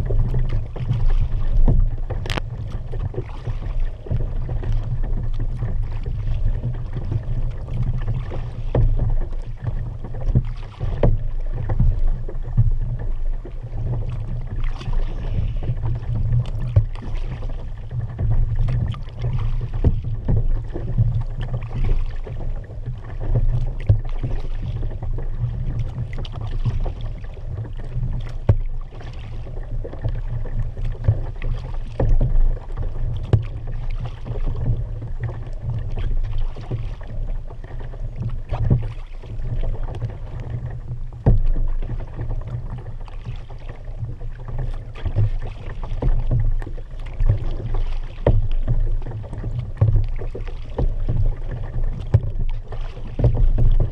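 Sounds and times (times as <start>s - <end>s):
steady low rumble: 0.0s - 8.4s
paddle splashing water: 0.0s - 53.9s
water washing along hull: 0.0s - 53.9s.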